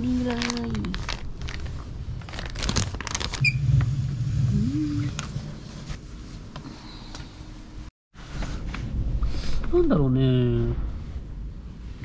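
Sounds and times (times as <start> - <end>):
plastic bag crinkling: 0.0 - 3.4.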